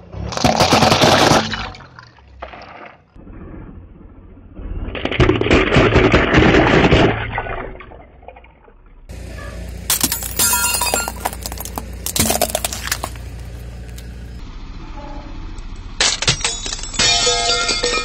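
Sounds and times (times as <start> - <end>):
light bulbs crushed under tyre: 9.7 - 14.2, 16.0 - 18.0.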